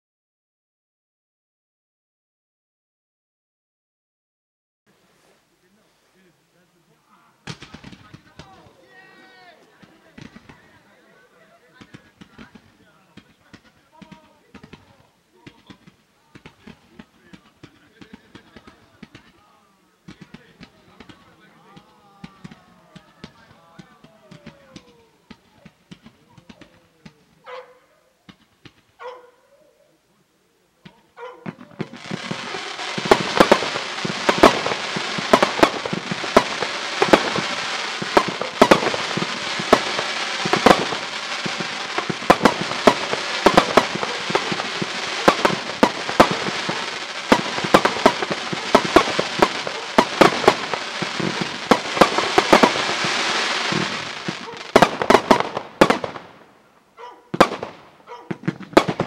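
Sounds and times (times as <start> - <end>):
voices: 4.9 - 28.3, 29.0 - 56.4
fireworks shots and crackling: 7.4 - 11.0, 11.7 - 27.4, 30.8 - 56.6, 57.3 - 59.0
faint fireworks pops: 7.4 - 27.5, 28.2 - 29.0, 30.8 - 56.6, 57.3 - 59.0.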